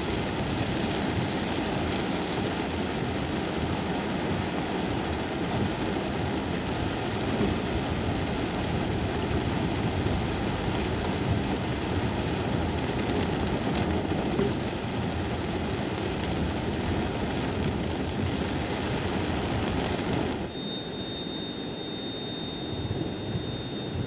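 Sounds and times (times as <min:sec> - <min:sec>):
heavy rain on car roof: 0:00.0 - 0:24.0
high-pitched whine: 0:20.4 - 0:24.0.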